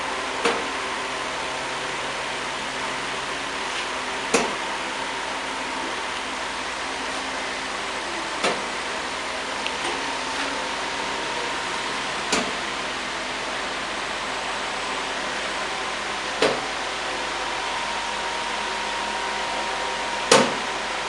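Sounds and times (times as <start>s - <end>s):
blower and cooling fan rushing: 0.0s - 21.0s.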